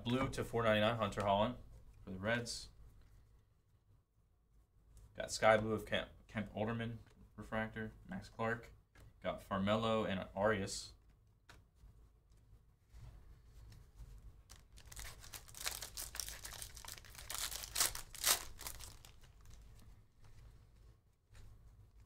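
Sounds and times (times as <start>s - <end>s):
wrapper crackling: 14.4s - 19.8s
wrapper ripping: 14.4s - 19.8s.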